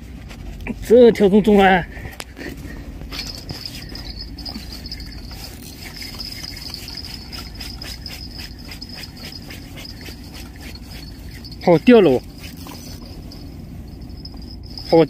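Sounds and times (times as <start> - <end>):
fishing reel whining and ticking: 3.1 - 15.0.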